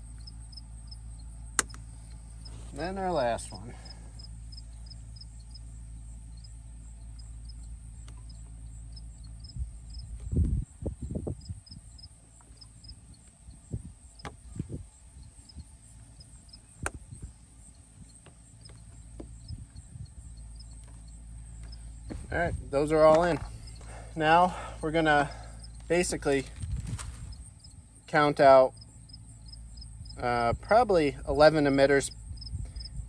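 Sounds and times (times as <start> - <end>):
insect chirping: 0.0 - 33.0
sharp clicks: 1.6 - 2.2
hand-handling thumps and rustles: 21.6 - 24.1, 26.4 - 27.4.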